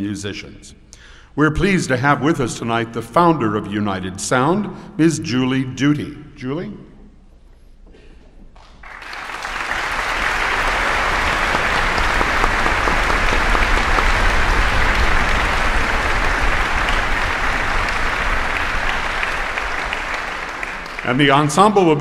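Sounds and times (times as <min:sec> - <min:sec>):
audience applauding: 0:08.6 - 0:22.0.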